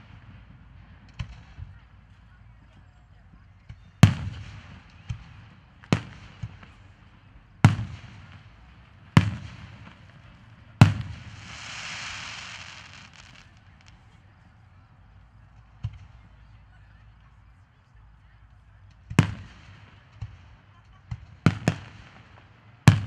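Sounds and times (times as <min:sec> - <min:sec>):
fireworks bangs: 0:07.6 - 0:14.5
fireworks hiss: 0:10.8 - 0:14.2.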